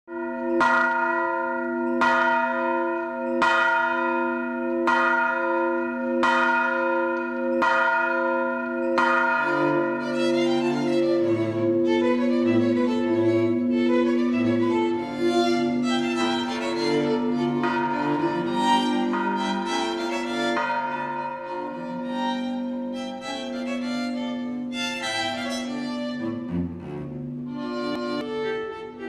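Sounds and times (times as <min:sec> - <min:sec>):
church bell tolling: 0:00.1 - 0:29.0
bowed strings with cello bass: 0:09.5 - 0:20.6, 0:21.5 - 0:29.0.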